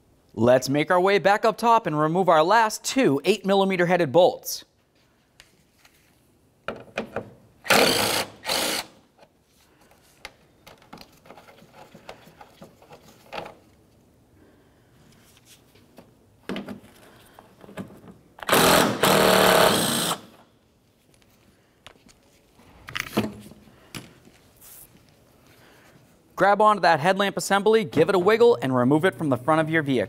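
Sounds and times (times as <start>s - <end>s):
cordless drill spinning: 7.6s - 9.0s, 18.4s - 20.4s.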